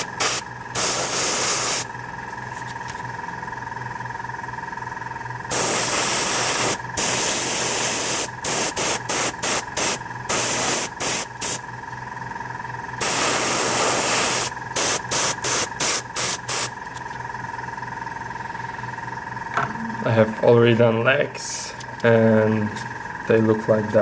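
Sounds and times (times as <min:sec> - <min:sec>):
airbrush spraying: 0:00.0 - 0:01.9, 0:05.5 - 0:11.6, 0:13.0 - 0:16.8.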